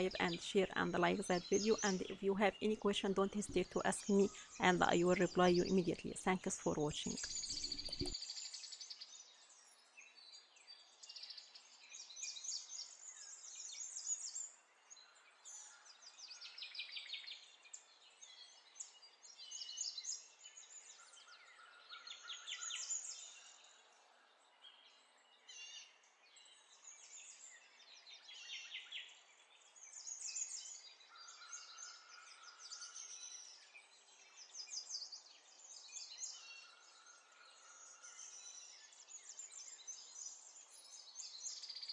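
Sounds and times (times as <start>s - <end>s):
birds chirping and trilling: 0.0s - 16.6s.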